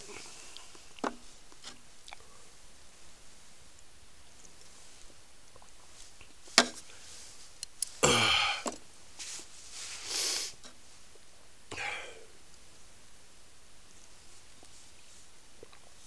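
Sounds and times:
person sniffing and breathing out: 8.0 - 10.6.

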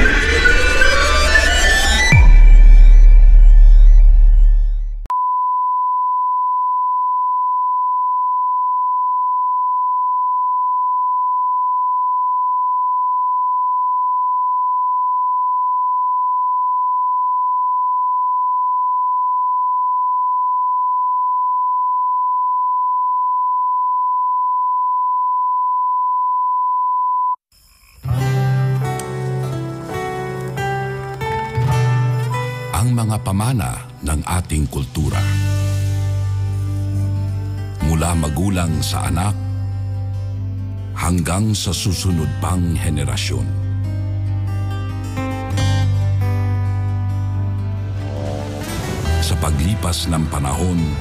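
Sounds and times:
electronic music: 0.0 - 5.1, 47.4 - 49.8
steady sine test tone: 0.0 - 27.4.

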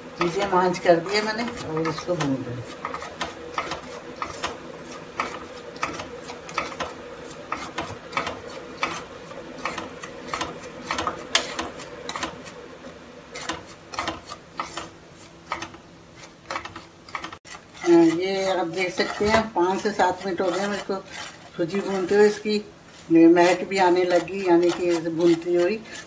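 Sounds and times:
spatula scraping a pan: 0.0 - 26.0
steady low hum: 0.0 - 26.0.

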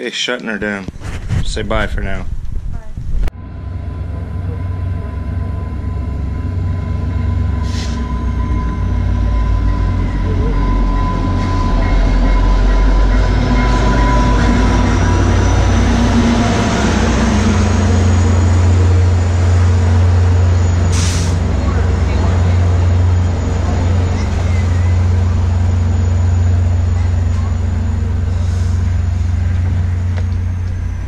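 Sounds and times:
diesel locomotive engine rumble: 1.5 - 31.0
train coaches rolling by: 3.4 - 31.0
thin high squeal: 22.5 - 28.9.

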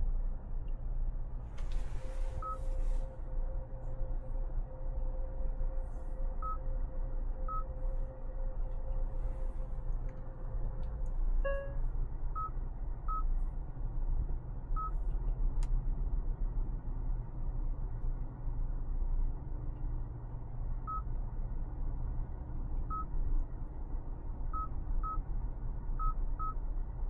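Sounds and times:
car road and drivetrain rumble: 0.0 - 27.0
steady mid-pitched tone: 11.4 - 11.9.

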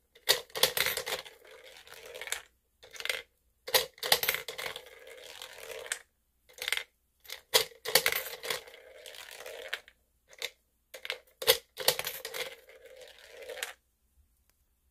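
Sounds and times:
balls clicking on plastic: 0.2 - 13.8
plastic balls rolling down ramp: 1.1 - 3.2, 4.1 - 6.8, 7.4 - 13.8.

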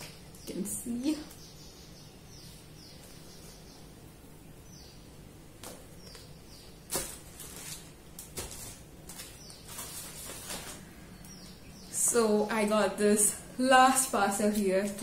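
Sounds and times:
bird chirping: 0.0 - 7.9, 9.1 - 15.0
handling rustles and knocks: 6.9 - 10.9.

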